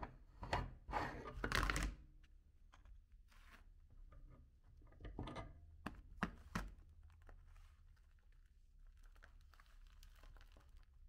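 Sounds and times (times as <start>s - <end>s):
crumbly rustling and crackling: 6.5s - 11.0s.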